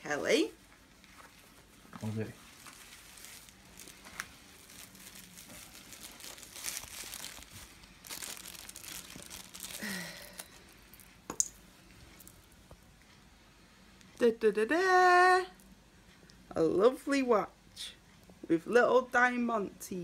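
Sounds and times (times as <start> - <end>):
packaging crinkling and tearing: 2.4 - 11.1.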